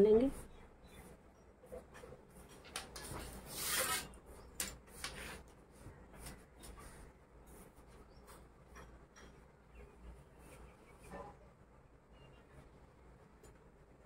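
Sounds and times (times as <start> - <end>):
steel ruler scraping: 3.3 - 5.4.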